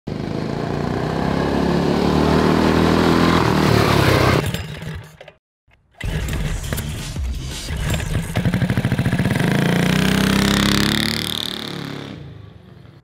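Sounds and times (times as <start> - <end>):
go-kart engine under throttle: 0.1 - 5.0, 8.3 - 12.2.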